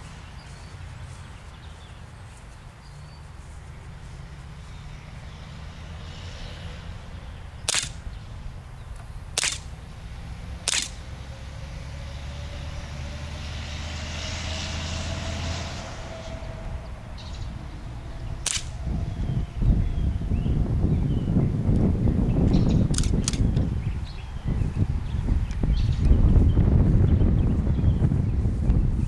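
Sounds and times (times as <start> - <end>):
air pistol shots: 7.6 - 8.1, 9.4 - 9.8, 10.6 - 11.0, 18.4 - 18.8.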